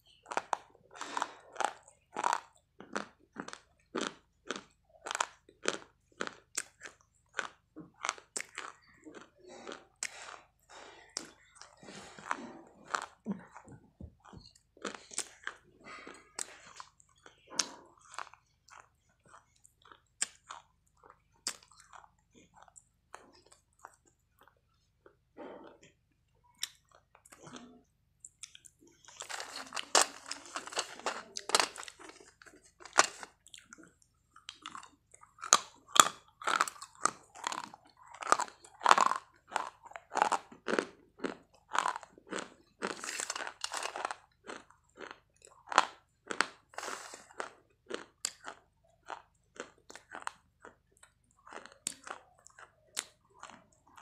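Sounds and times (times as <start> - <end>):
crunching and chewing chalk: 0.0 - 54.0.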